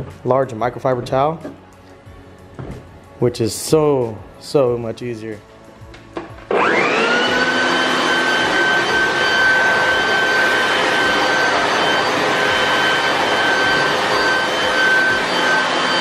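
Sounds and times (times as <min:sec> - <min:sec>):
air blower whine: 0:05.9 - 0:16.0.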